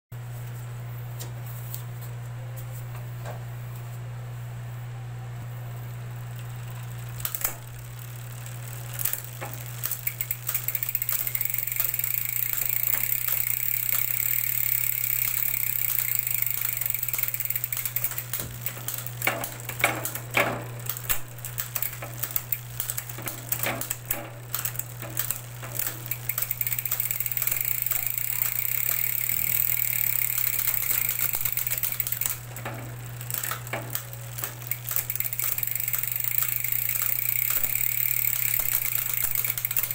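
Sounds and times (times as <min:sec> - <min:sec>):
bicycle chain whirring: 0:05.7 - 0:39.9.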